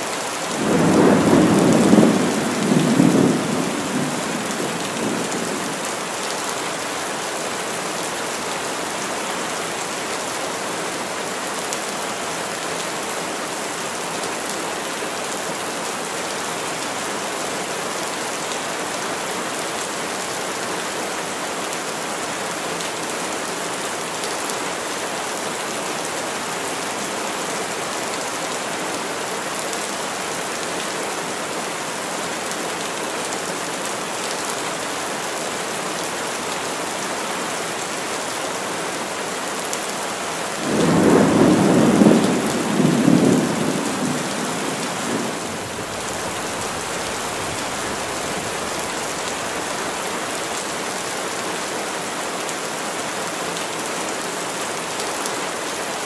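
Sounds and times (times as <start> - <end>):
heavy rain falling: 0.0 - 56.0
low rumble of thunder: 0.6 - 5.5, 40.7 - 48.2.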